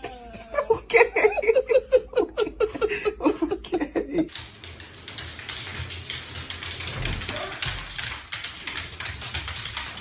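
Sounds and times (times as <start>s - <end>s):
dog claws clicking on wood floor: 4.3s - 10.0s.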